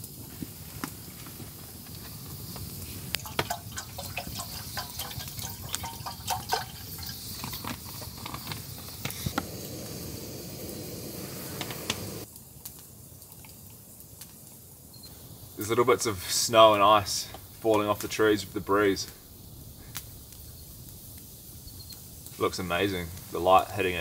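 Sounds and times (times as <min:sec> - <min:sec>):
water pouring into a pot: 0:01.9 - 0:12.3.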